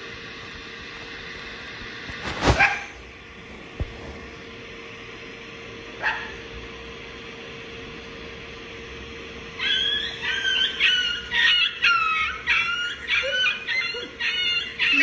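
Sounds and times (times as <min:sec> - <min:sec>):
faint steady hum: 0:00.0 - 0:15.0
bird squawking: 0:09.6 - 0:15.0.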